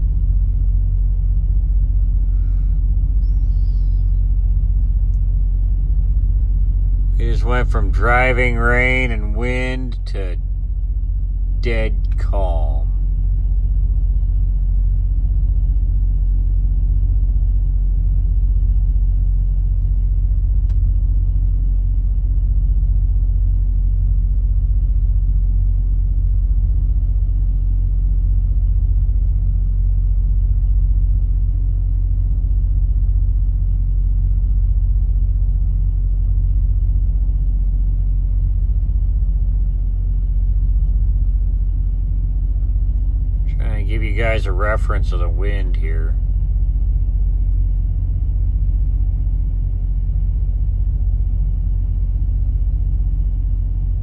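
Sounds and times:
truck engine idling: 0.0 - 13.1, 40.3 - 52.9.

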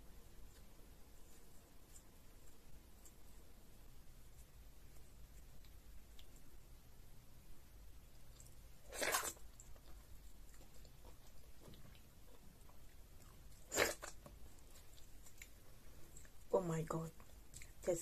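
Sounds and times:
person chewing food: 4.3 - 6.8, 8.0 - 16.5, 17.2 - 17.8.

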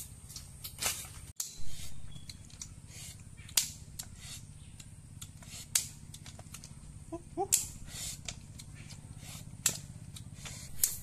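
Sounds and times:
sticks snapping and cracking: 0.3 - 1.6, 3.4 - 4.1, 4.7 - 6.8, 7.5 - 11.0.

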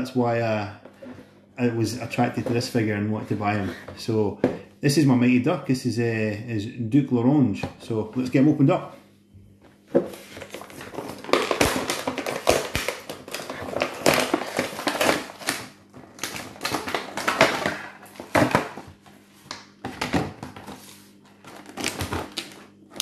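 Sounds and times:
plastic blister crackling and tearing: 10.4 - 18.8, 21.4 - 23.0.

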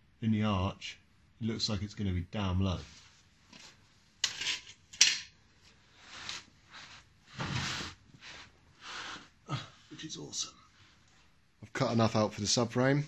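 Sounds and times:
scraping and shuffling: 5.6 - 9.4.

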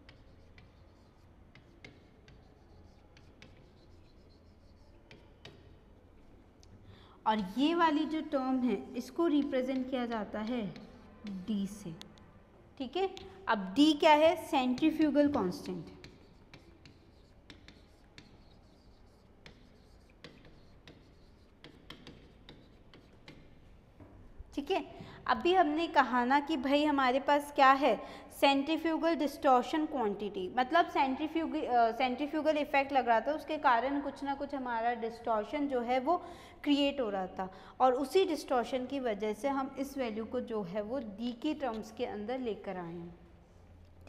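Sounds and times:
chalk scratching on chalkboard: 0.0 - 6.5, 9.0 - 11.5, 13.9 - 23.6.

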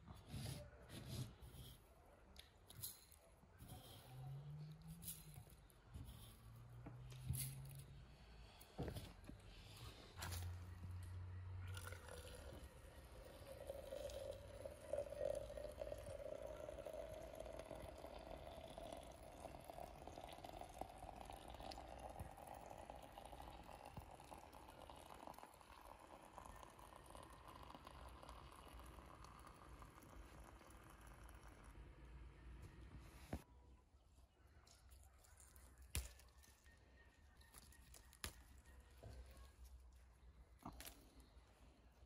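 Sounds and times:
water pouring into glass: 11.6 - 32.3.

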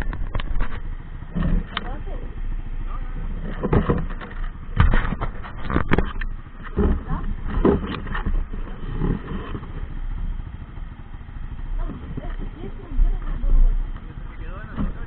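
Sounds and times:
buggy engine running low: 0.0 - 15.0
faint voices: 1.4 - 10.0, 11.2 - 15.0
knocks and thumps: 3.3 - 9.7, 14.6 - 15.0.

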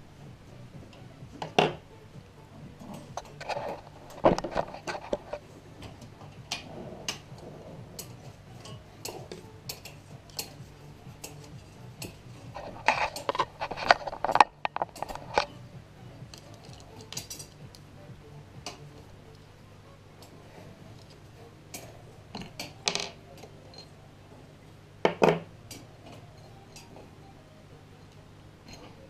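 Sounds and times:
hand tools on wooden table: 0.6 - 19.5, 20.2 - 24.1, 25.0 - 29.0
metal clinks and knocks: 2.7 - 15.6, 16.3 - 17.8, 20.2 - 23.9.

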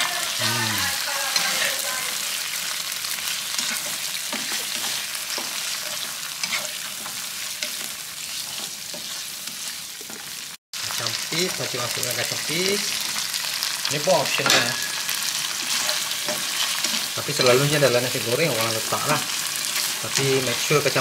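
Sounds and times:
prawns sizzling in hot oil: 0.0 - 21.0
spatula scraping a pan: 3.0 - 10.4, 14.4 - 20.3.

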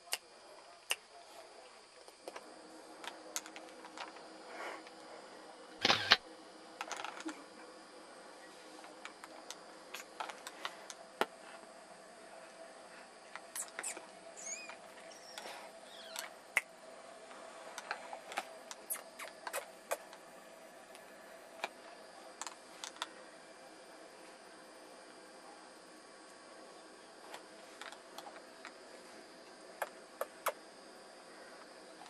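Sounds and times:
kittens squeaking: 13.6 - 16.3.

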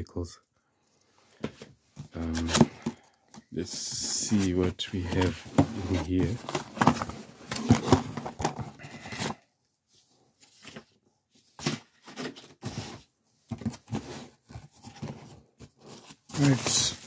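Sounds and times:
cardboard box being opened: 3.8 - 9.4, 11.6 - 17.0.

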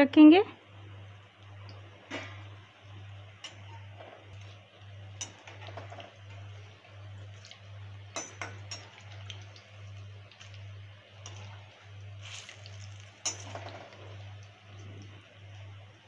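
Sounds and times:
food deep-frying in oil: 0.0 - 16.0
metal spoon clinking on pan: 3.4 - 3.9, 5.1 - 5.9, 8.1 - 9.4, 13.2 - 14.0.

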